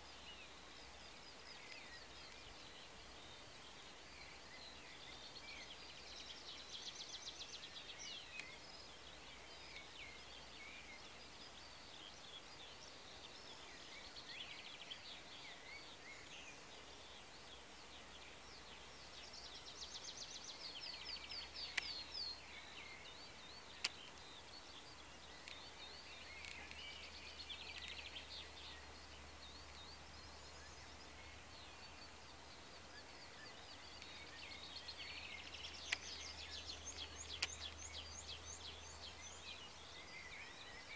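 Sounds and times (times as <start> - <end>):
songbirds chirping and trilling: 0.0 - 40.9
sharp clicks: 21.6 - 22.0, 26.3 - 27.0, 35.4 - 38.0.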